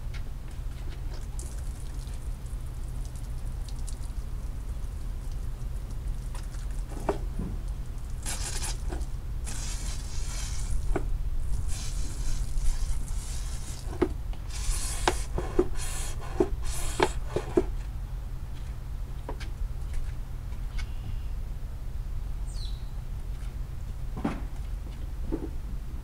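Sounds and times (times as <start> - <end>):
brush scrubbing wet rug: 8.2 - 17.8.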